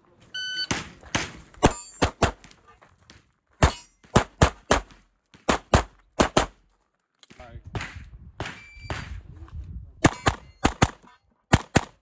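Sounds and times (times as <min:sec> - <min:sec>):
bullet hitting steel target: 0:03.6 - 0:06.6
rapid pistol fire: 0:05.5 - 0:06.5.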